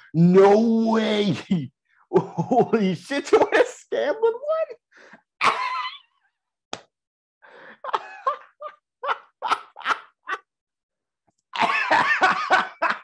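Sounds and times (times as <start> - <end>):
man laughing in bursts: 7.6 - 10.5, 11.6 - 13.0.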